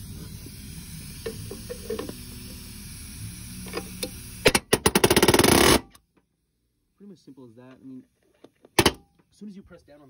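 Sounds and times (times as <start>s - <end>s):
palm nailer rapid hammering: 4.5s - 5.9s.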